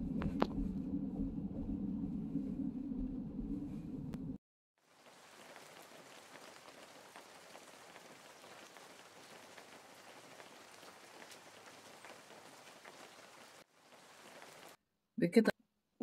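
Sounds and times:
light rain: 0:04.8 - 0:14.8.

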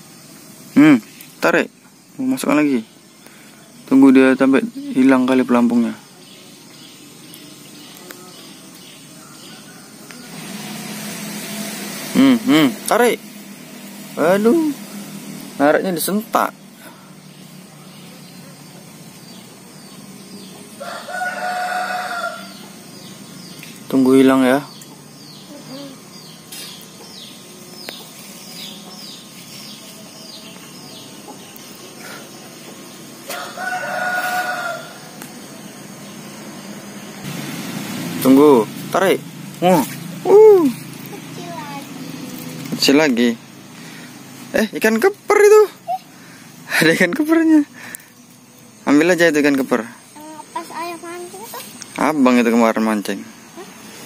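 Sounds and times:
steady hiss: 0:00.0 - 0:54.0
small bird chirping: 0:00.2 - 0:10.5, 0:14.2 - 0:37.3, 0:38.2 - 0:54.0
rooster crowing: 0:09.1 - 0:11.1, 0:20.4 - 0:23.1, 0:33.2 - 0:35.6
faint bird chirps: 0:16.3 - 0:36.2.

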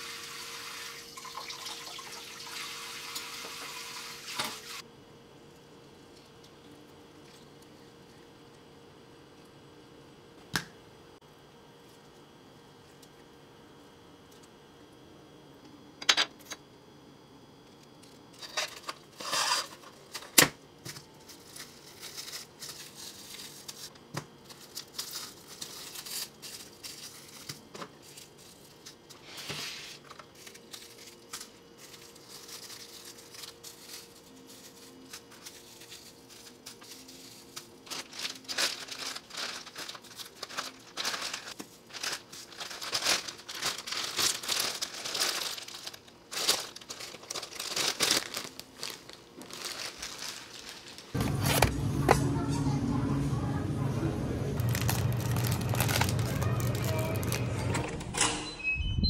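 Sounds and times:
plastic bag crinkling: 0:21.2 - 0:29.0, 0:30.1 - 0:51.7, 0:54.5 - 0:57.8
cling wrap crinkling and tearing: 0:21.2 - 0:29.2, 0:30.0 - 0:51.6, 0:54.5 - 0:57.8.

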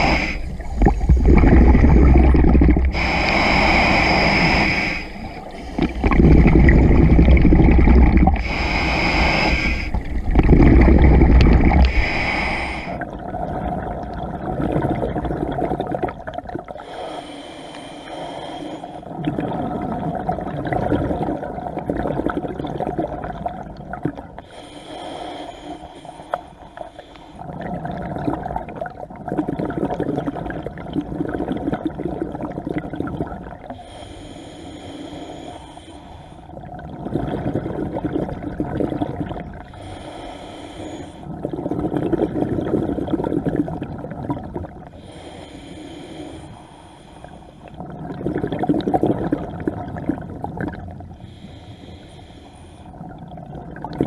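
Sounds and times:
scuba regulator hissing inhales: 0:00.0 - 0:10.6, 0:11.2 - 0:13.1, 0:16.8 - 0:19.0, 0:24.5 - 0:27.4, 0:33.7 - 0:36.6, 0:39.7 - 0:41.3, 0:45.0 - 0:47.8, 0:51.2 - 0:53.0
bubbling exhales underwater: 0:00.0 - 0:16.9, 0:19.1 - 0:24.4, 0:27.4 - 0:33.7, 0:36.6 - 0:40.0, 0:41.2 - 0:45.2, 0:47.7 - 0:51.4, 0:53.0 - 0:54.0.

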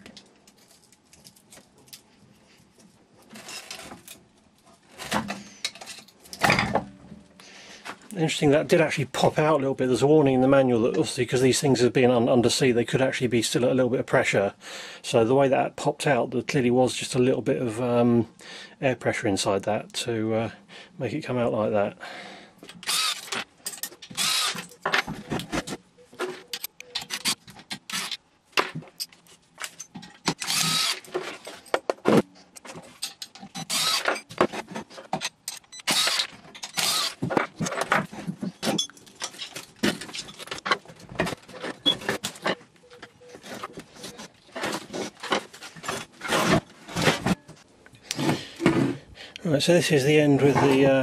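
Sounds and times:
metal parts clattering on workbench: 0:05.0 - 0:06.9, 0:23.2 - 0:25.7, 0:36.4 - 0:42.6.

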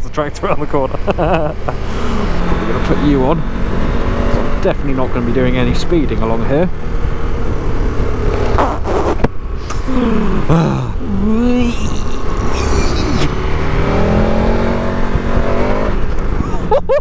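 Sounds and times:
motorcycle engine revving: 0:00.0 - 0:16.9
wind rumble on microphone: 0:13.2 - 0:17.0.

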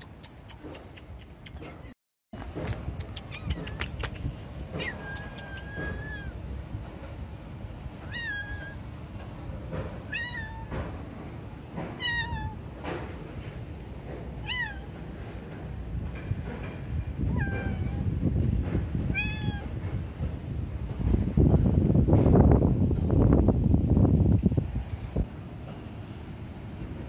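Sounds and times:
cat meowing: 0:04.8 - 0:06.4, 0:08.1 - 0:08.8, 0:10.1 - 0:10.7, 0:12.0 - 0:12.6, 0:14.4 - 0:14.9, 0:19.1 - 0:19.7.

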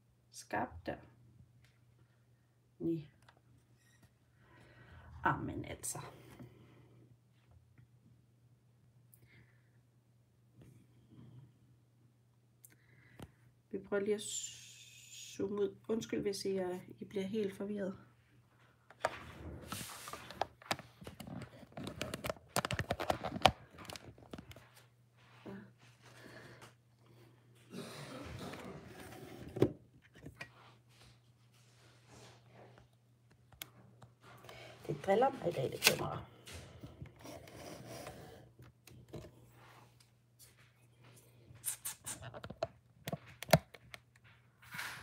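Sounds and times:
camera handling clicks and rustles: 0:20.1 - 0:24.6, 0:42.2 - 0:44.2.

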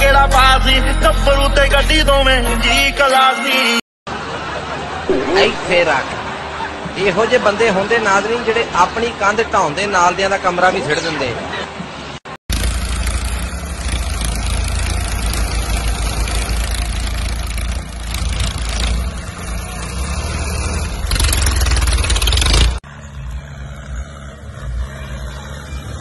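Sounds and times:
diesel tractor engines under load: 0:11.9 - 0:26.0.

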